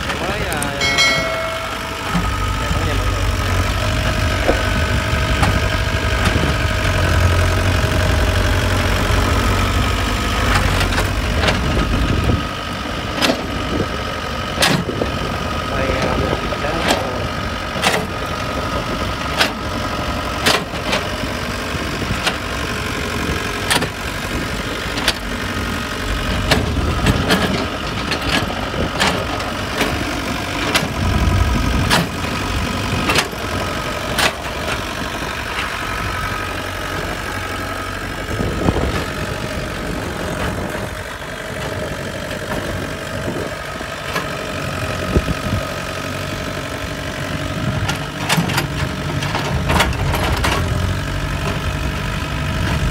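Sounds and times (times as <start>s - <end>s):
excavator diesel engine running: 0.0s - 52.9s.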